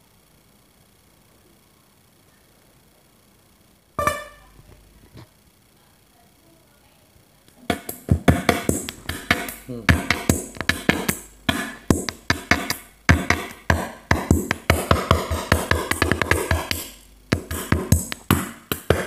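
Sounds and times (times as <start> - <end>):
music with a steady beat: 7.6 - 19.0.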